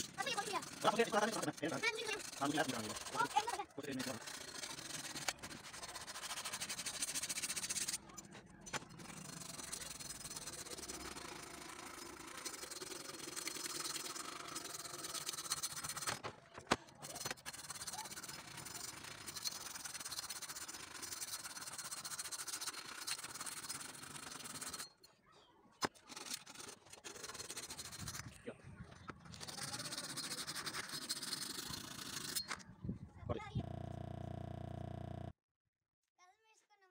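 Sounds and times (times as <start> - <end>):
rubbing on steel blade: 0.0 - 16.2, 17.0 - 24.9, 26.0 - 28.4, 29.3 - 32.6.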